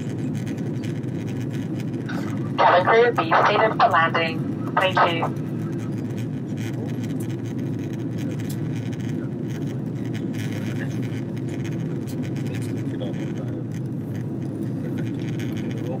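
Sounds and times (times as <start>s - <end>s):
airliner cabin engine noise: 0.0s - 16.0s.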